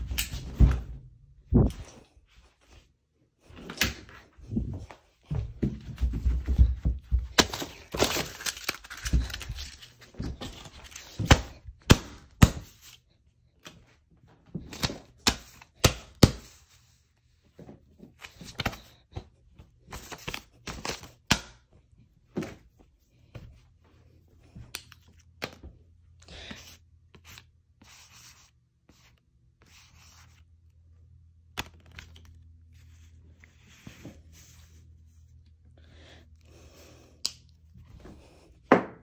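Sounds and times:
paper rustling and tearing: 0:07.4 - 0:11.3
low steady hum: 0:21.6 - 0:38.7.

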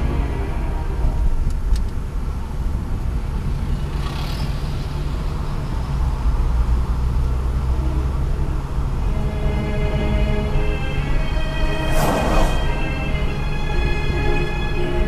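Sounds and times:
car engine droning: 0:00.0 - 0:15.0
road and tyre rumble: 0:00.0 - 0:15.0
van passing with whoosh: 0:11.5 - 0:13.6.

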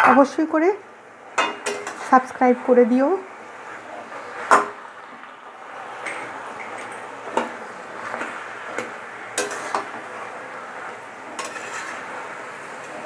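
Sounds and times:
low sizzle from pan: 0:00.0 - 0:13.0
spatula scraping in metal pan: 0:01.4 - 0:02.4, 0:06.0 - 0:13.0.

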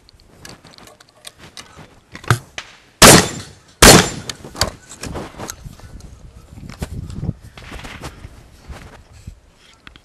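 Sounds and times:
gunfire blasts: 0:02.6 - 0:04.3.

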